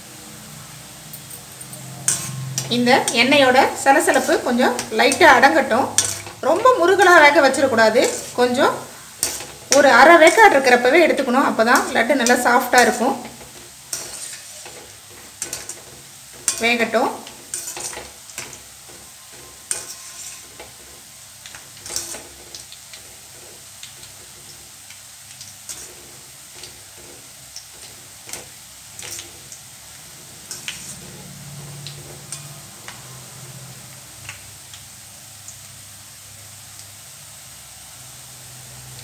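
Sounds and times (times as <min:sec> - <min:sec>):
batter sizzling in hot oil: 0:00.0 - 0:39.0
ladle scraping and clicking on pan: 0:01.2 - 0:10.7, 0:11.6 - 0:24.6, 0:25.3 - 0:29.6, 0:30.2 - 0:33.0.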